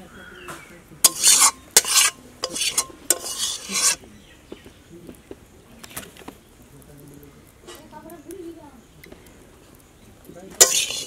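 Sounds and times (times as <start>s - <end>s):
spatula scraping a bowl: 1.0s - 4.0s, 10.6s - 11.0s.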